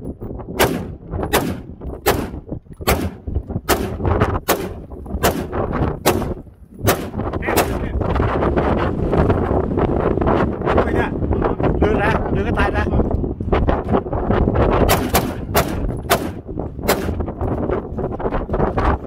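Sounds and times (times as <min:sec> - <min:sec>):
wind rumbling on microphone: 0:00.0 - 0:19.0
rifle gunshots: 0:00.6 - 0:07.8, 0:14.9 - 0:17.2.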